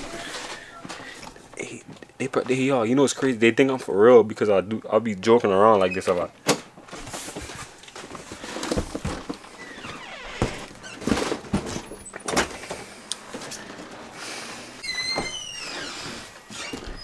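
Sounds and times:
door opening and shutting: 0:09.6 - 0:12.6, 0:14.8 - 0:17.0.

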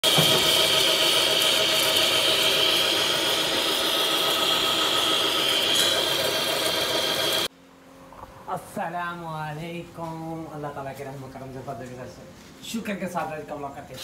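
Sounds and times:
metal lathe machining with high whine: 0:00.0 - 0:07.5.

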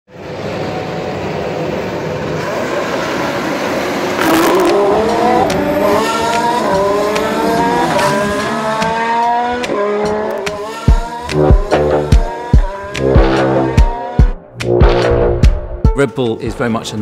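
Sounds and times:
racing car engine accelerating: 0:02.2 - 0:15.6.

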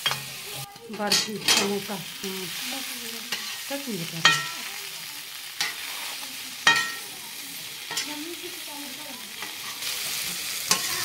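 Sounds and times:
potatoes sizzling in oil: 0:00.0 - 0:11.0
metal ladle knocking pan: 0:01.0 - 0:01.9, 0:04.2 - 0:04.6, 0:06.6 - 0:07.0.

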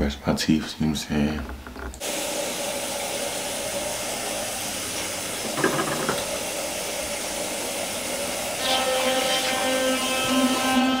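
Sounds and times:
tap running into a sink: 0:04.9 - 0:07.3.

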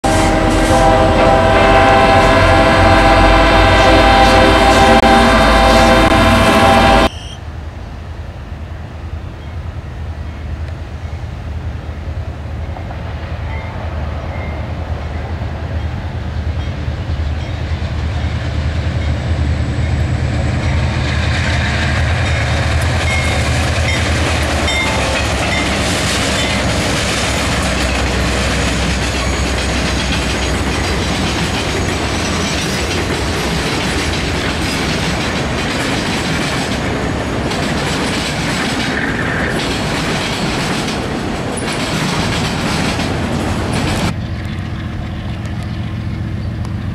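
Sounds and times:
diesel locomotive engine rumble: 0:00.0 - 0:46.9
faint high squeal: 0:07.1 - 0:07.5
train wheels clattering over rails: 0:16.3 - 0:46.9.

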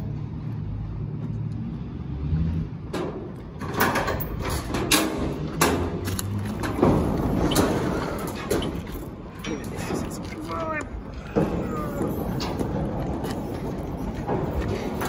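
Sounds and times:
steel door knocking and clanking: 0:02.9 - 0:08.9.

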